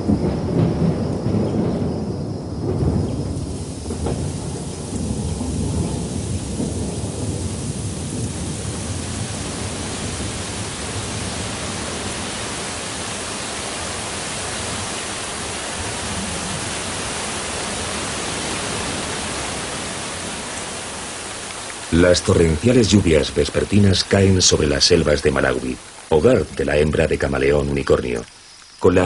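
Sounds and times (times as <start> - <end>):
low thunder rumbling: 0.0 - 28.2
torrential rain hissing: 0.0 - 29.0.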